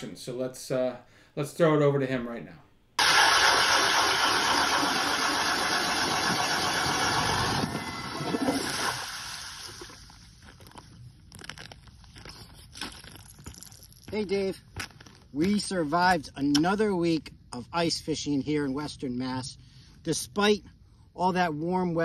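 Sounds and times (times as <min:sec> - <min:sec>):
power ice auger drilling: 0:03.0 - 0:10.1.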